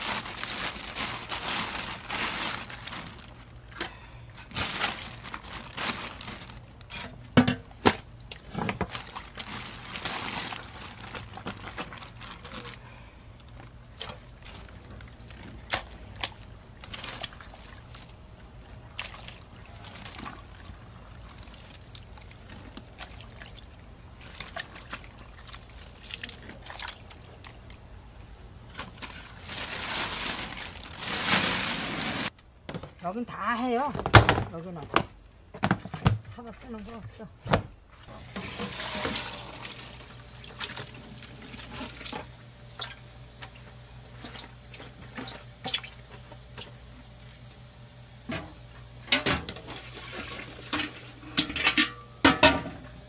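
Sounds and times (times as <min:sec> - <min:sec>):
plastic bag crinkling: 0:00.0 - 0:03.7, 0:04.5 - 0:06.9, 0:08.8 - 0:14.8, 0:16.8 - 0:17.6, 0:28.8 - 0:32.3.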